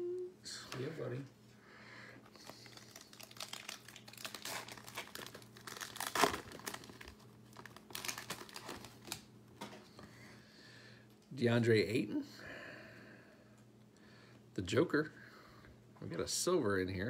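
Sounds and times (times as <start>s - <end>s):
foil wrapper tearing and crinkling: 2.3s - 9.3s.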